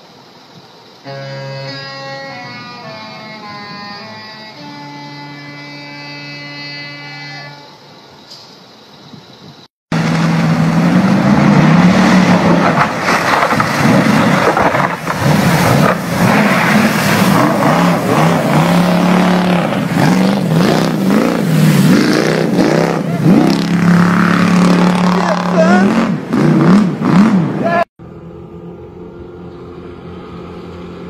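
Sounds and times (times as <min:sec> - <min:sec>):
water rushing and spraying: 0:10.0 - 0:26.6
motorboat engine revving: 0:15.0 - 0:31.0.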